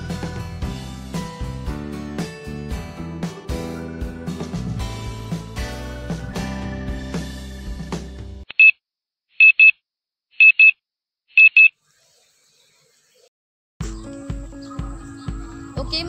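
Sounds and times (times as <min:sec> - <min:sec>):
music: 0:00.0 - 0:08.4, 0:13.8 - 0:16.0.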